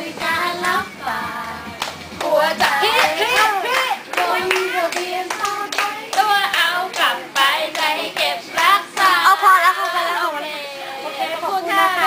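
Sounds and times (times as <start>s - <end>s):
women singing or chanting: 0.0s - 12.0s
women clapping hands: 1.8s - 9.2s.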